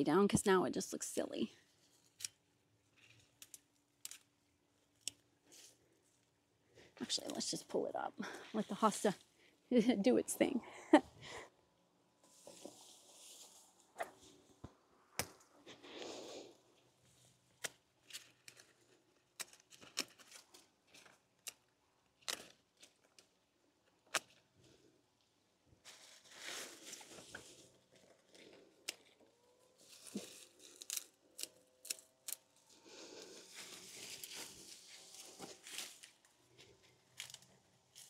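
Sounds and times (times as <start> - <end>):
stems snapping: 2.1 - 2.4, 3.0 - 4.3, 4.9 - 5.3, 17.6 - 23.4, 24.0 - 24.4, 29.8 - 32.6, 37.1 - 38.0
leaves rustling: 12.2 - 14.6, 25.8 - 29.0, 29.8 - 36.4.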